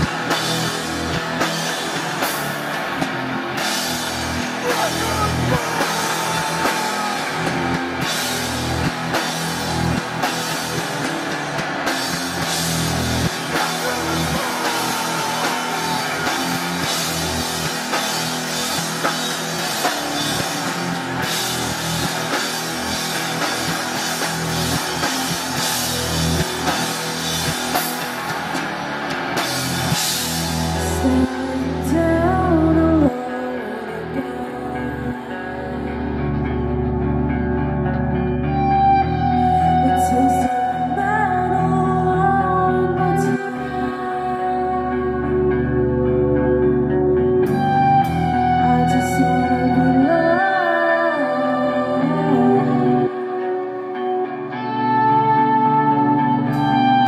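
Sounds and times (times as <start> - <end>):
drum kit: 0.0 - 32.0
bass guitar: 0.0 - 57.0
electric guitars: 0.0 - 57.0.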